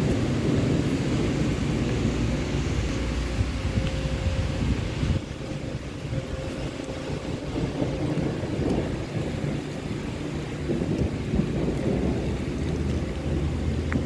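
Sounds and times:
steady rain hiss: 0.0 - 14.0
thunder rumble: 0.0 - 14.0.

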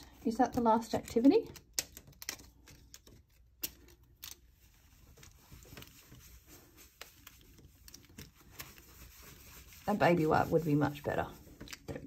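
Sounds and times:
small clicks and taps of cards: 0.5 - 4.4
cloth rubbing on page: 4.6 - 11.8.

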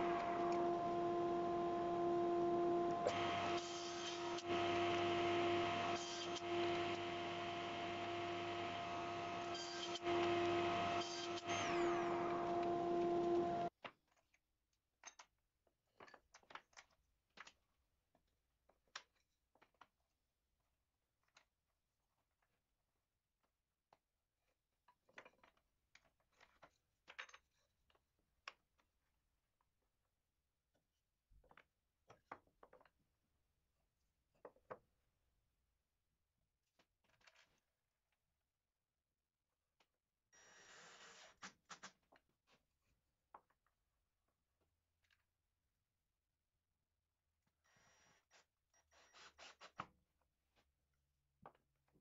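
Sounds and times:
table saw humming: 0.0 - 13.7.

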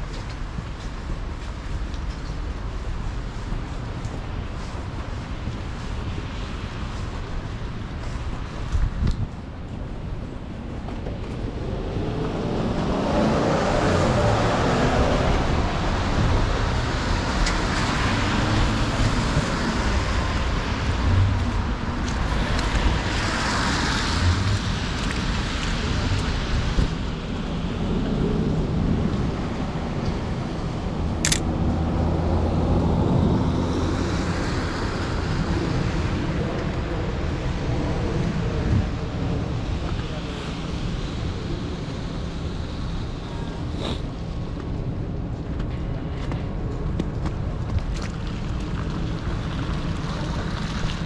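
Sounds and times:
low traffic rumble: 0.0 - 51.0
cars passing: 9.8 - 51.0
sharp click: 31.2 - 31.5.

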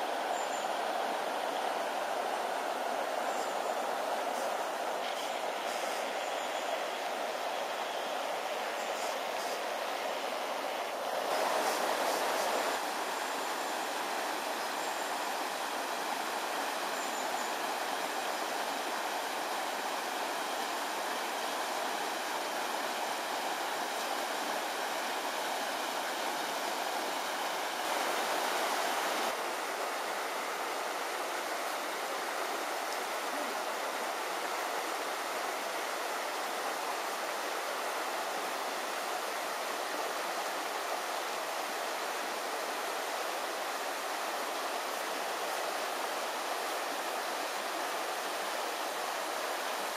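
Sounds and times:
river rushing over rocks: 0.0 - 49.9.

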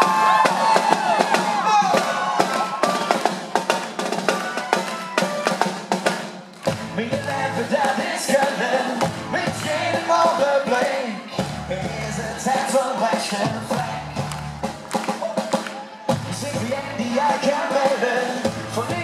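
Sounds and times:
rock band playing: 0.0 - 19.0
snare drum fast rhythm: 0.0 - 19.0
voices singing: 6.9 - 14.6, 15.2 - 19.0.

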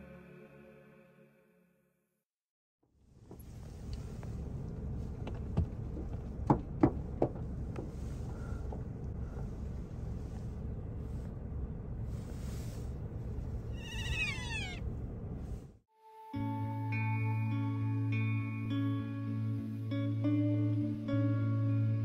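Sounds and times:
low outdoor rumble: 2.9 - 15.9
sharp knocks: 5.6 - 7.9
animal call sliding down: 13.8 - 14.8.

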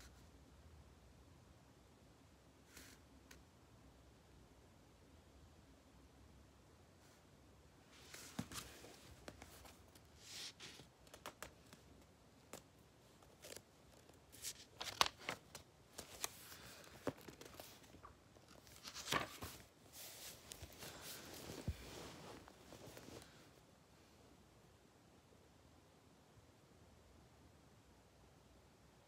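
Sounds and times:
book and bedding rustling: 7.9 - 23.6.

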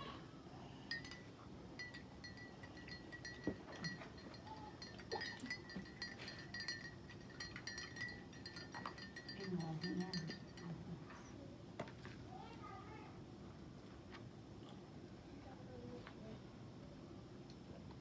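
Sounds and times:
teaspoon clinking in glass: 0.9 - 10.8.

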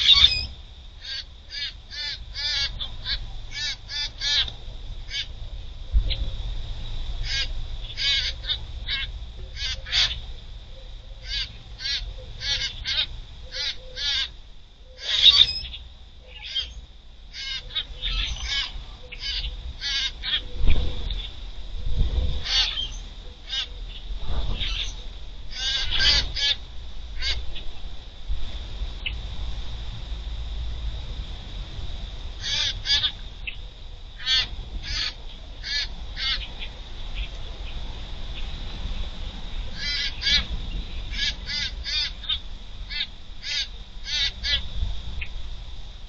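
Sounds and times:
birds giving harsh calls: 0.0 - 5.5, 7.2 - 21.4, 22.4 - 27.7, 32.4 - 37.3, 39.7 - 45.3
steady high buzz: 0.0 - 46.0.

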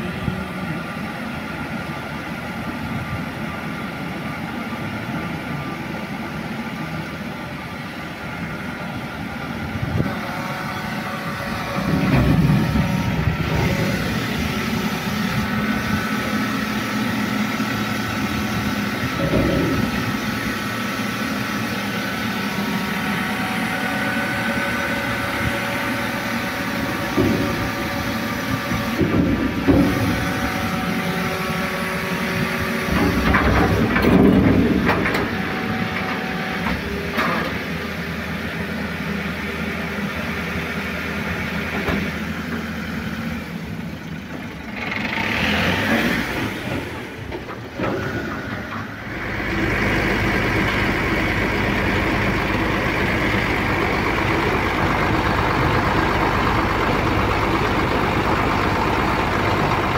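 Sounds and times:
hydraulic arms humming and whining: 0.0 - 59.9
truck engine running: 0.0 - 59.9
metal clanks and knocks: 32.9 - 37.6.

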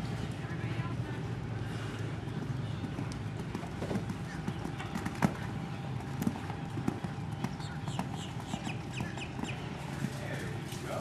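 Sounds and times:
horse hoofbeats on sand: 2.0 - 11.0
bird chirping: 2.6 - 10.1.

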